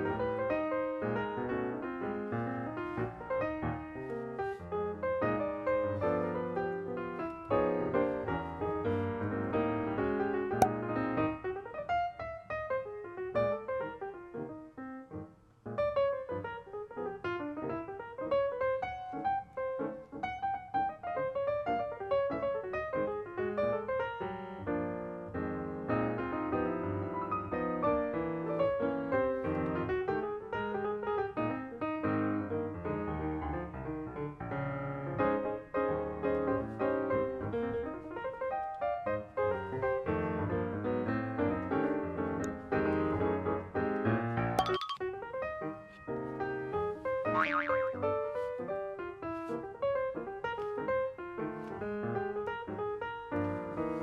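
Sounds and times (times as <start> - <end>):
piano music: 44.6 - 45.3, 47.4 - 48.2.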